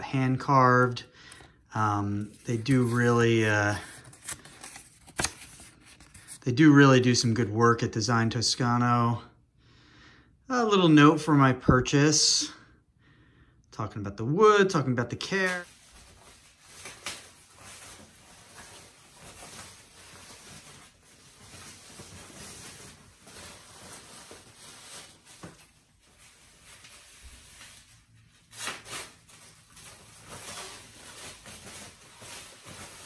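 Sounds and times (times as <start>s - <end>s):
protective wrapping rustling: 2.0s - 6.4s, 15.4s - 33.0s.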